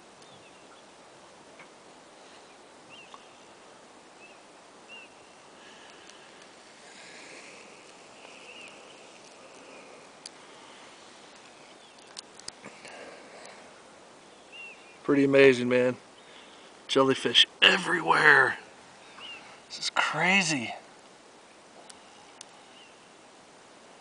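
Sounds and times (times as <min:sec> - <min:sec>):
outdoor ambience over water: 0:00.0 - 0:24.0
high bird chirps: 0:08.2 - 0:09.8.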